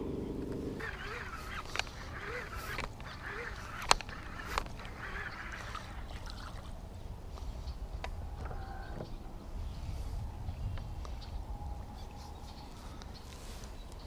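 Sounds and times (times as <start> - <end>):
sharp clicks: 0.8 - 5.8
geese honking: 0.8 - 6.2.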